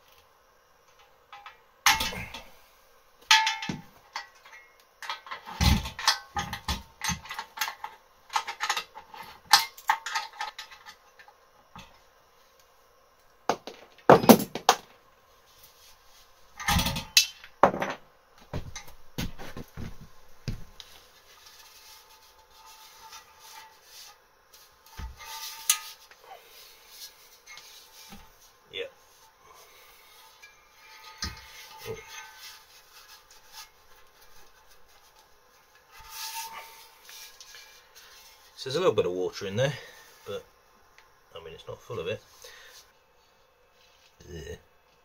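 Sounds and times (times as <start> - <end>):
heavy thumps: 16.7 - 20.8.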